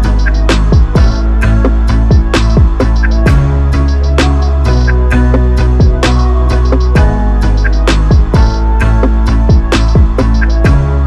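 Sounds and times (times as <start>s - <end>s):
sharp percussion hits: 0.0s - 1.3s, 5.8s - 10.8s
deep kick drums: 0.6s - 3.6s, 5.8s - 6.1s, 6.9s - 7.2s, 7.9s - 8.8s, 9.5s - 11.0s.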